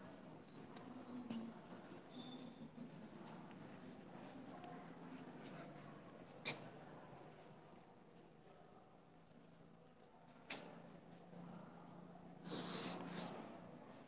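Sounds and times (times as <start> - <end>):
chalk scratching on blackboard: 1.6 - 5.6, 12.4 - 13.4.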